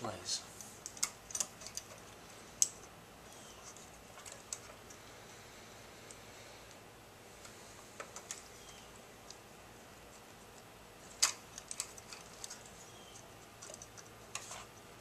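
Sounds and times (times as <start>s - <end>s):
small metal parts clicking: 0.8s - 2.9s, 11.1s - 14.5s.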